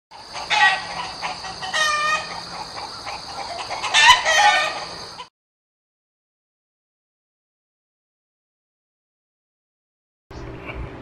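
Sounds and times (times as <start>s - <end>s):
rooster crowing: 0.2s - 5.3s.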